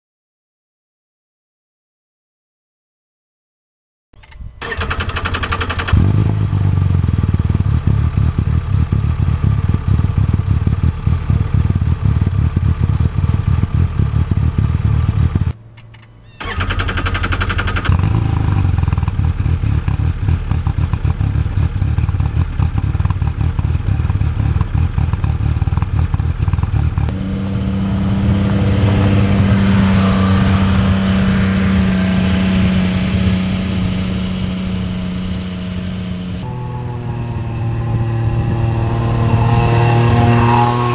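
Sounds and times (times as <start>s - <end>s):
engine running at exhaust: 4.2s - 40.9s
vehicle driving slowly past: 18.0s - 40.9s.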